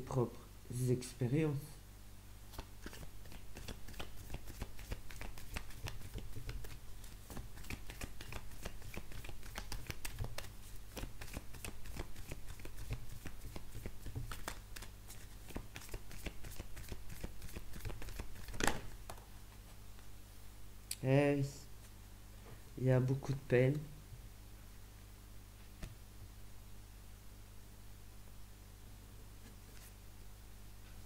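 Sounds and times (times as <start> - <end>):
cards being shuffled: 2.5 - 19.7.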